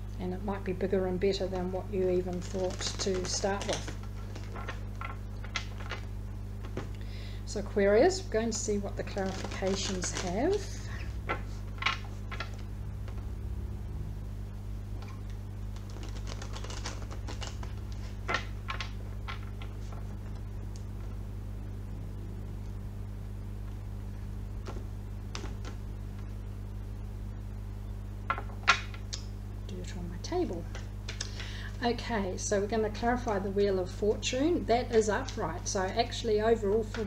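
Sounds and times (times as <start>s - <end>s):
steady low hum: 0.0s - 37.0s
cards being shuffled: 1.5s - 7.0s, 8.5s - 13.3s, 15.0s - 21.2s, 24.6s - 25.8s.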